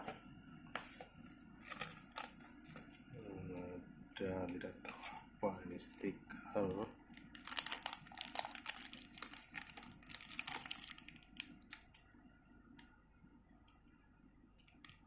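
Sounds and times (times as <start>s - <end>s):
plastic bag and paper crinkling: 1.6s - 3.0s, 7.2s - 12.0s.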